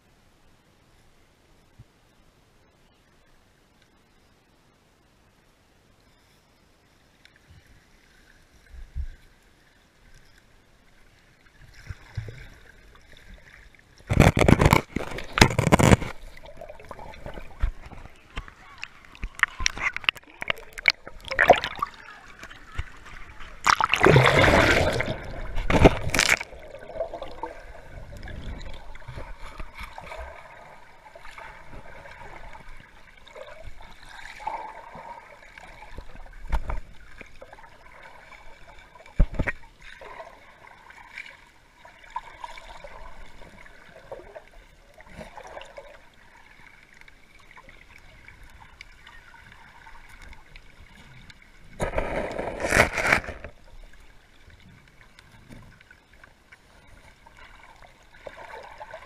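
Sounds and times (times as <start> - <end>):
water sloshing and splashing: 11.0 - 59.0
loud splash: 23.6 - 27.7.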